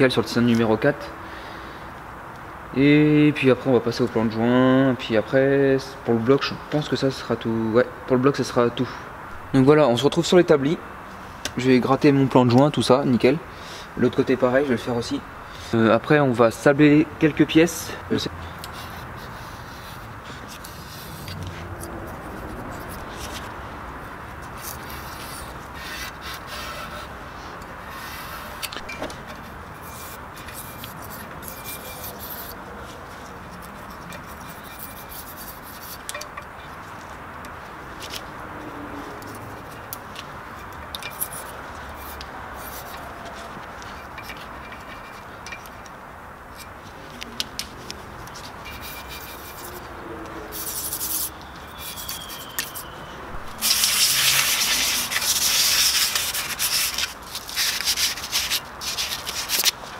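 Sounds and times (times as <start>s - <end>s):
scraper scraping metal: 18.7s - 23.5s, 24.4s - 32.6s, 33.5s - 36.3s, 40.6s - 45.4s, 48.3s - 49.9s, 50.5s - 59.8s.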